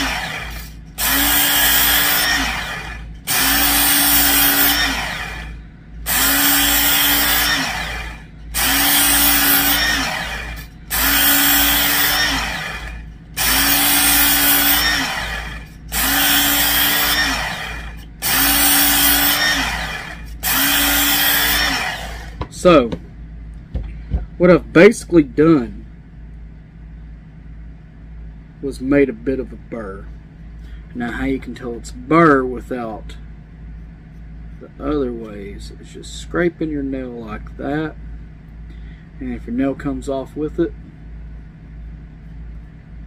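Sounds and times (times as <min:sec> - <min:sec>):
belt sharpener grinding knife blade: 0:00.0 - 0:05.5, 0:06.1 - 0:22.3
motor hum: 0:00.0 - 0:27.1.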